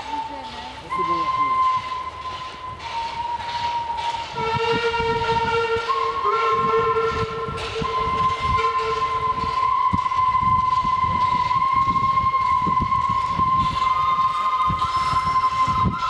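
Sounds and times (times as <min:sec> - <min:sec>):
deeper steam whistle: 0:00.0 - 0:16.0
high steam whistle: 0:00.0 - 0:16.0
locomotive exhaust beats: 0:00.0 - 0:16.0.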